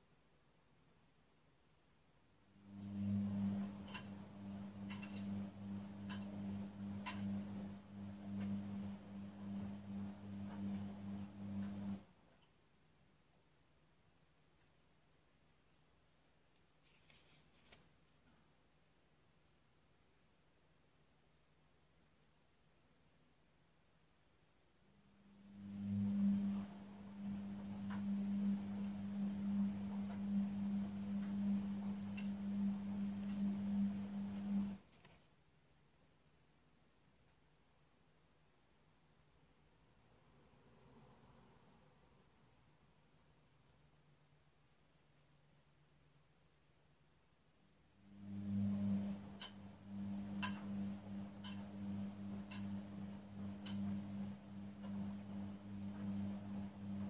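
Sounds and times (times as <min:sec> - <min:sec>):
low electrical hum: 0:00.0 - 0:57.0
book pages turning: 0:16.8 - 0:17.9.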